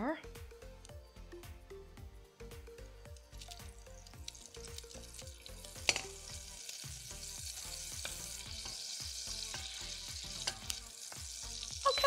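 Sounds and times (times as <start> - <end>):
butter sizzling in a saucepan: 3.1 - 12.0.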